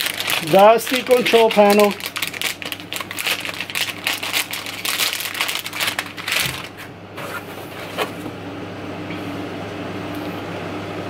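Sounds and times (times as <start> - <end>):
plastic wrapping crinkling: 0.0 - 6.9.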